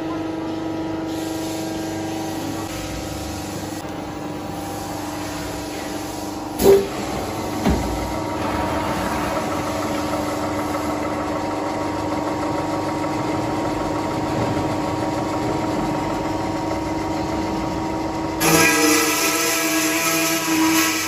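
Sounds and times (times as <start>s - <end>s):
circular saw humming: 1.9s - 21.0s
saw blade cutting steel tubes: 18.4s - 21.0s.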